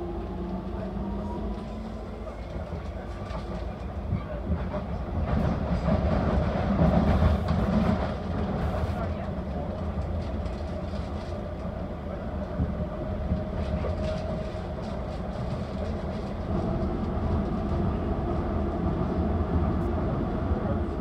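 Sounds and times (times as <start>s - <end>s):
train wheels and motors rumbling: 0.0s - 21.0s.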